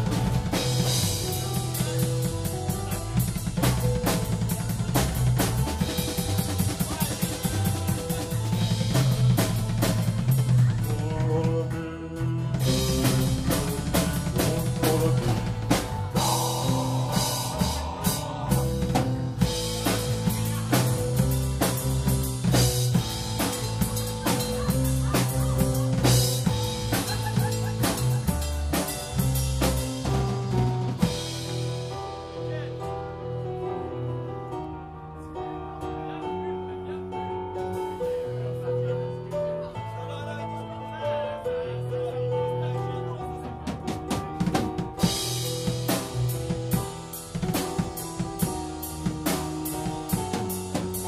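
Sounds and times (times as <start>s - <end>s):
drum kit beat: 0.0s - 32.8s, 43.4s - 51.0s
sustained low notes: 12.6s - 33.0s.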